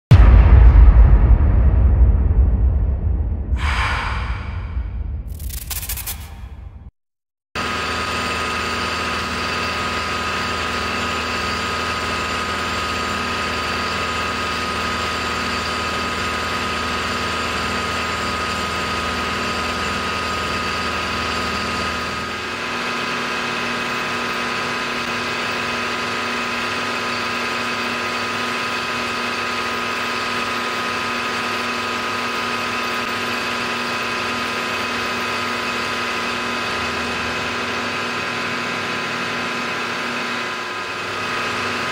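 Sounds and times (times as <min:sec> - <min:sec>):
deep hum: 0:00.1 - 0:06.9
milling machine whine: 0:07.6 - 0:41.9.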